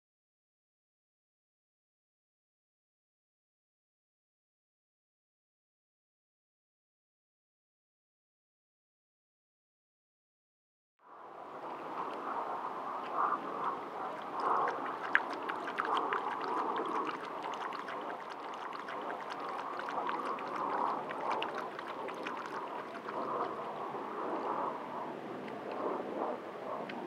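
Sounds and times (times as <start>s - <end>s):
animal lapping water: 12.1s - 24.0s.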